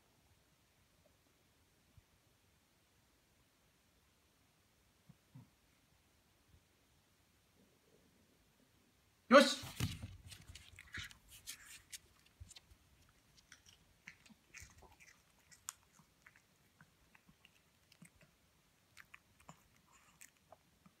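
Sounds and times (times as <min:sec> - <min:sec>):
dog chewing a treat: 0:10.4 - 0:21.0.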